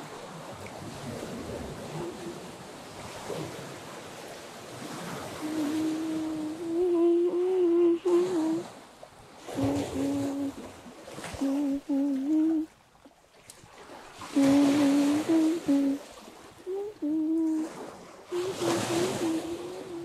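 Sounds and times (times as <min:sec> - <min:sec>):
small waves washing on bank: 0:00.0 - 0:20.0
person humming: 0:05.4 - 0:08.7, 0:09.5 - 0:10.6, 0:11.3 - 0:12.7, 0:14.3 - 0:20.0.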